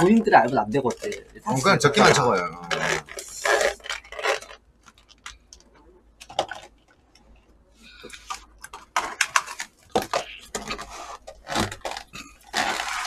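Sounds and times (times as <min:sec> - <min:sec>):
plastic containers clicking and clattering: 0:02.7 - 0:07.2, 0:08.0 - 0:13.0.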